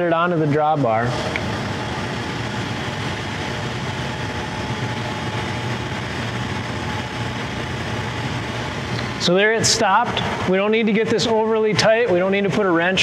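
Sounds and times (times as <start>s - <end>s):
low machinery hum: 0.0s - 13.0s
faint thin whine: 1.0s - 10.6s.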